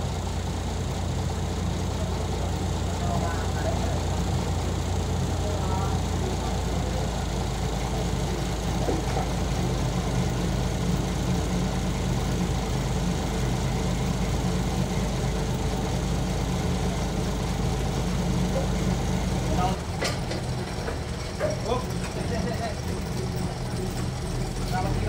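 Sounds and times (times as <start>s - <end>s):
forklift engine idling: 0.0s - 25.0s.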